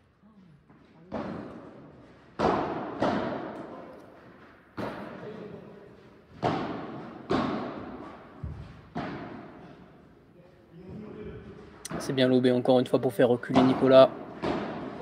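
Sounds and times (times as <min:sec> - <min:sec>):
ball bouncing on court: 0:01.0 - 0:03.9, 0:04.8 - 0:05.3, 0:06.3 - 0:09.7, 0:13.5 - 0:15.0
ball hit by rackets: 0:01.1 - 0:05.3, 0:06.3 - 0:09.7, 0:13.5 - 0:15.0.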